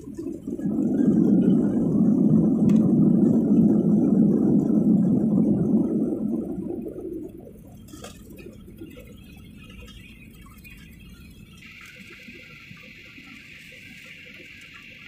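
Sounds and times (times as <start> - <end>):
jet engines and runway roar: 0.0 - 6.8
faint rumble: 0.0 - 11.6.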